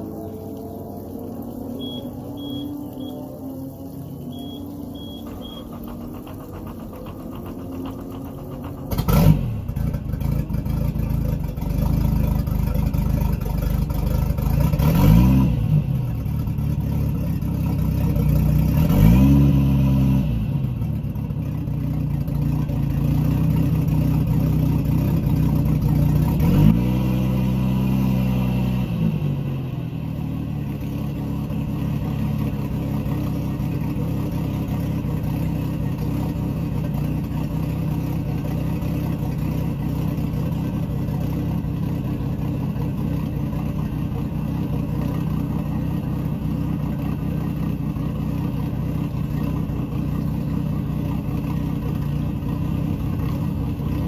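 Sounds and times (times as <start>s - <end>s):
boat engine idling: 0.0s - 14.9s, 16.0s - 18.8s, 20.7s - 26.3s, 30.0s - 54.0s
boat engine revving: 0.0s - 21.1s
boat engine starting: 0.0s - 26.7s.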